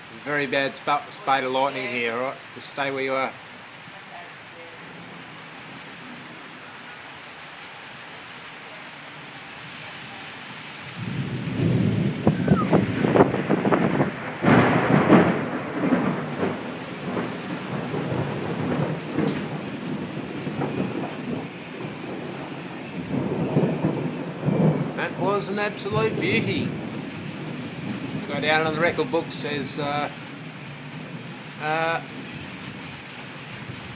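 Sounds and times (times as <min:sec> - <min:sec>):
steady rain: 0:00.0 - 0:33.9
thunder crackling and rumbling: 0:10.9 - 0:33.9.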